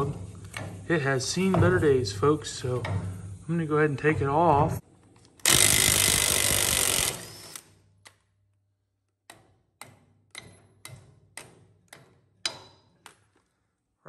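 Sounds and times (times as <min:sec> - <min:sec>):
impact wrench hammering: 0:05.4 - 0:07.6.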